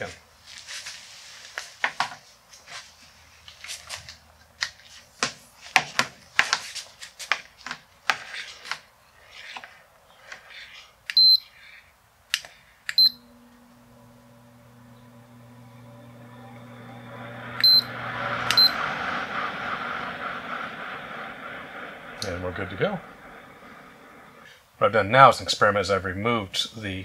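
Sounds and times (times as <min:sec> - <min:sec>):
blower motor humming: 0:13.0 - 0:24.5
short electronic beeps: 0:17.6 - 0:17.9, 0:18.5 - 0:18.8.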